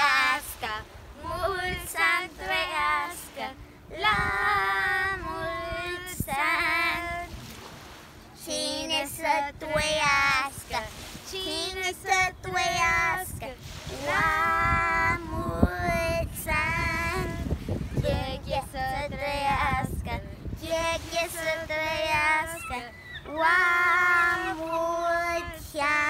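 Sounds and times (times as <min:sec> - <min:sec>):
children singing: 0:20.8 - 0:26.0.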